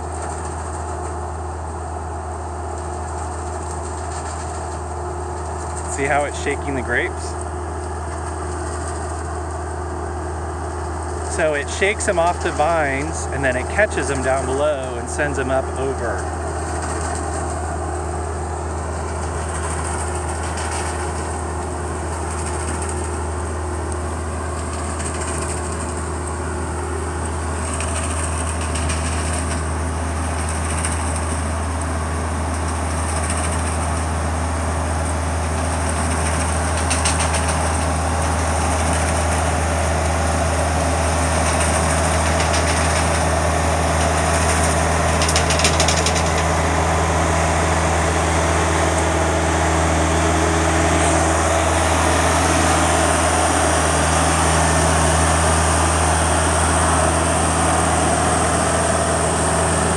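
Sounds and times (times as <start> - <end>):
tractor and harvester engines: 0.0 - 59.9
machine rattles: 35.8 - 39.6, 41.2 - 46.7.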